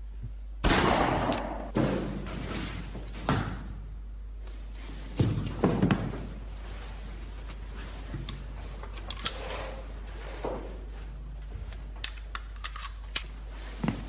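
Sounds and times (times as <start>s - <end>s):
heavy thuds and slams: 0.6s - 2.4s.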